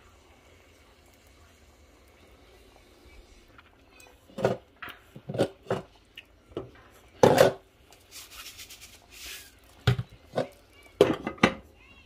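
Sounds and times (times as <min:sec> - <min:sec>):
faint hiss: 0:00.0 - 0:04.4, 0:06.0 - 0:12.0
cookware knocks and thuds: 0:04.4 - 0:05.9, 0:06.5 - 0:07.6, 0:09.8 - 0:11.6.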